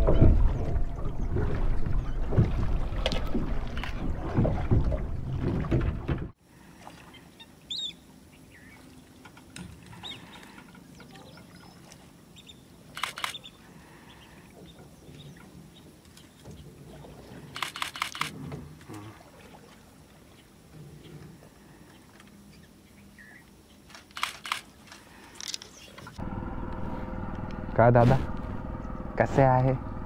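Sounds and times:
boat engine running: 0.0 - 6.4, 26.1 - 30.0
bird chirp: 7.1 - 8.9, 21.9 - 23.8
quick clicks: 13.0 - 13.4, 17.6 - 18.4, 23.9 - 25.8.

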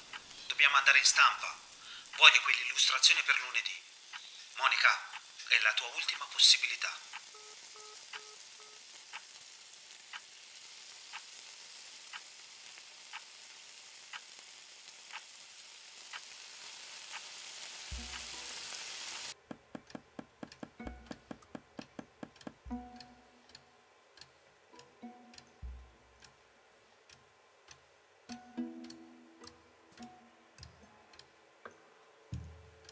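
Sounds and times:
clock ticking: 0.0 - 0.4, 2.0 - 2.4, 4.1 - 5.3, 7.1 - 9.3, 17.9 - 18.5, 19.3 - 26.4, 27.0 - 31.3, 32.4 - 32.9
steady hiss: 0.0 - 32.9
ticking music with low pulses: 17.9 - 18.5, 19.4 - 26.4, 27.1 - 31.3, 32.3 - 32.9.

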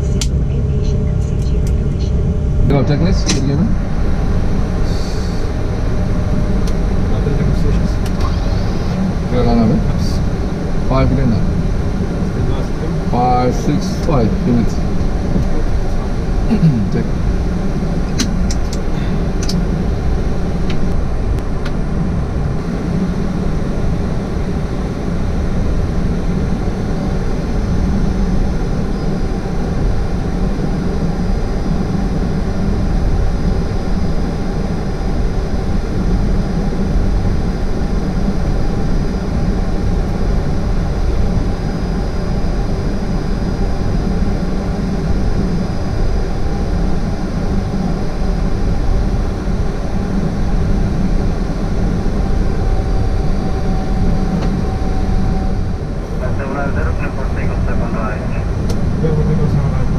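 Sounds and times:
jet engine and air-conditioning rumble: 0.0 - 59.9
thin high whine: 0.0 - 59.9.

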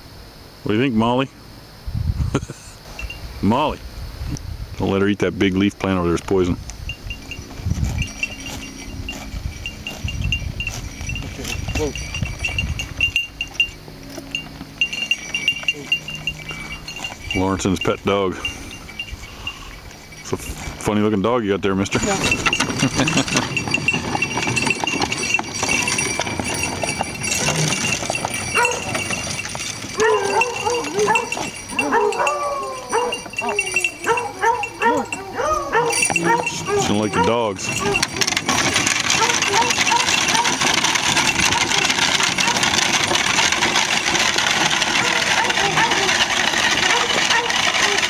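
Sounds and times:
hooves clip-clopping on asphalt: 5.8 - 48.0.

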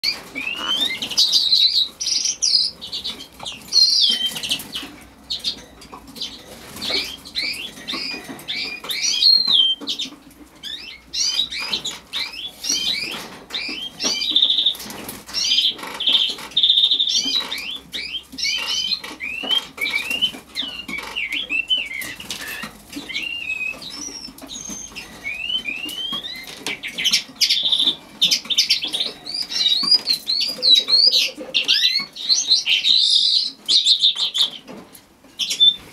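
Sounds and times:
skylark singing: 0.0 - 34.7.

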